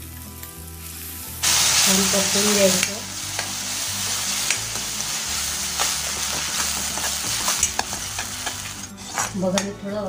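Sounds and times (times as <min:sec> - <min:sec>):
paste sizzling in oil: 0:00.0 - 0:09.5
spatula scraping pan: 0:04.2 - 0:09.5.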